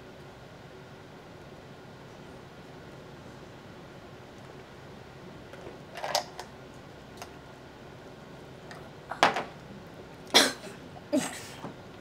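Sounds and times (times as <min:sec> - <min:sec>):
woman coughing: 0:10.3 - 0:11.6.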